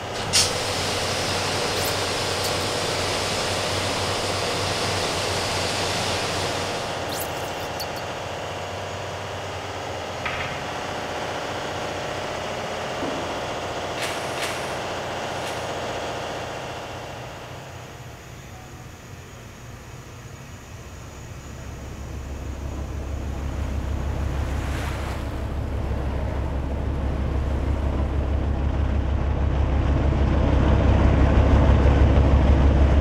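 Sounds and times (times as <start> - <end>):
engine room machinery drone: 0.0 - 33.0
pressure washer spray hissing: 0.3 - 7.9.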